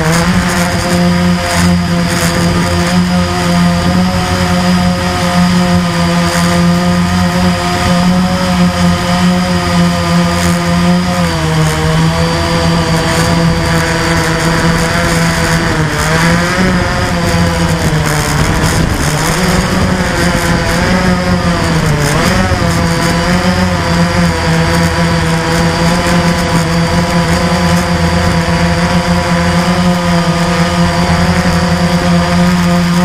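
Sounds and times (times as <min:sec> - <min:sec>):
quadcopter motors buzzing: 0:00.0 - 0:33.0.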